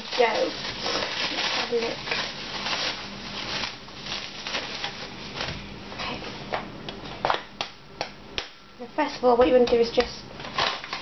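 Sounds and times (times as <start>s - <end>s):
plastic cling film rustling: 0.0s - 6.5s, 10.4s - 11.0s.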